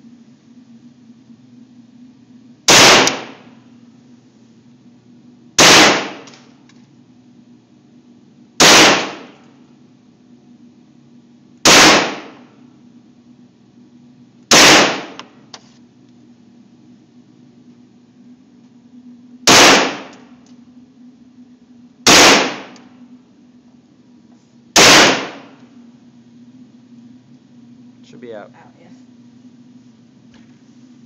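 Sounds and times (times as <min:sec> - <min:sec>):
steady low hum: 0:00.0 - 0:31.0
gunshots echoing indoors: 0:02.7 - 0:03.6, 0:05.6 - 0:06.5, 0:08.6 - 0:09.4, 0:11.6 - 0:12.6, 0:14.5 - 0:15.2, 0:19.5 - 0:20.3, 0:22.0 - 0:22.9, 0:24.8 - 0:25.6.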